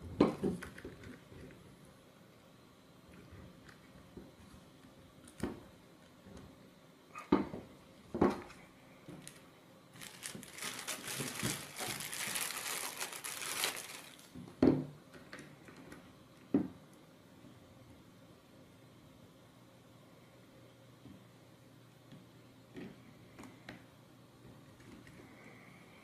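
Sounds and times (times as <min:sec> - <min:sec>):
plastic bag crinkling: 0:09.2 - 0:14.4.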